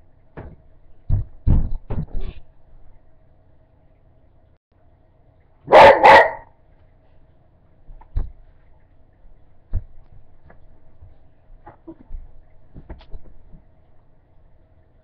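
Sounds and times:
dog barking loudly: 5.7s - 6.5s
soft thumps: 9.7s - 13.7s.

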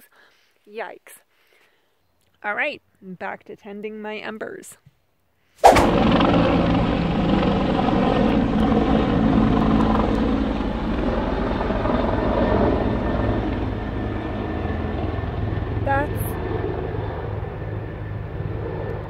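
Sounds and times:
helicopter flying overhead: 5.6s - 19.0s.

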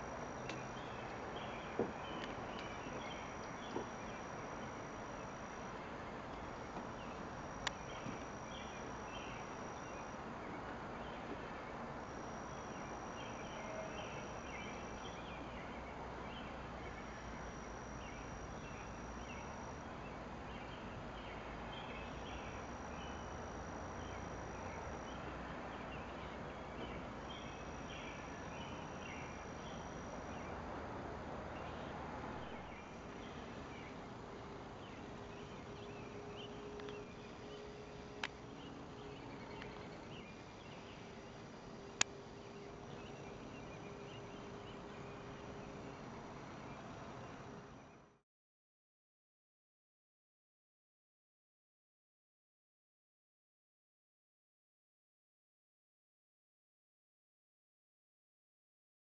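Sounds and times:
bird chirps: 0.1s - 30.6s.

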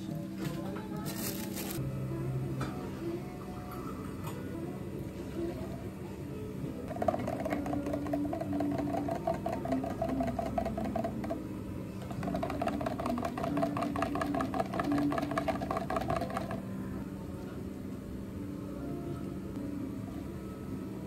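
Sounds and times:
metal spoon stirring in plastic cup: 6.9s - 11.4s, 12.0s - 16.6s.

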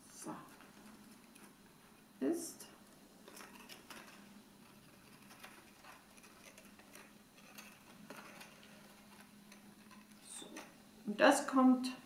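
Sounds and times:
paper crinkling and clicking: 3.2s - 10.8s.

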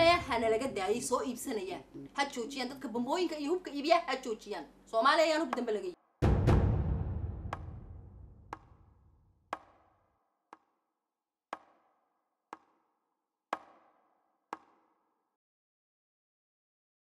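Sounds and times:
sharp percussive clicks: 7.5s - 10.8s, 11.5s - 14.9s.

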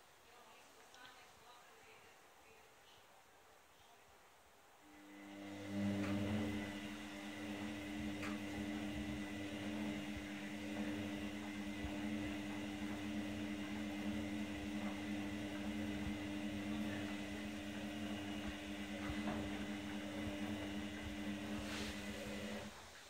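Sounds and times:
washing machine drum humming: 4.9s - 23.0s.

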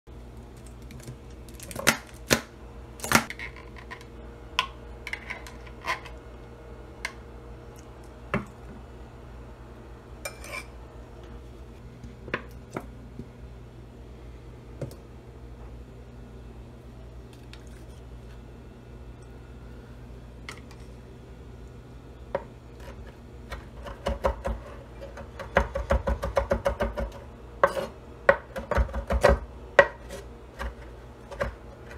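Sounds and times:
low steady hum: 0.1s - 31.9s
knife scraping: 5.1s - 6.2s, 10.3s - 10.7s, 27.6s - 28.0s, 29.8s - 31.9s.

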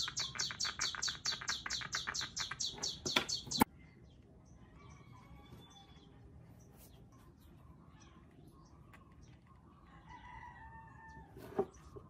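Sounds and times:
bird trilling: 0.0s - 3.7s.

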